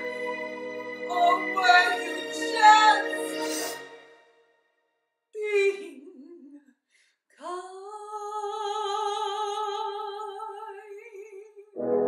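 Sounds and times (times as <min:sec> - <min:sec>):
woman singing held note: 0:01.1 - 0:03.8.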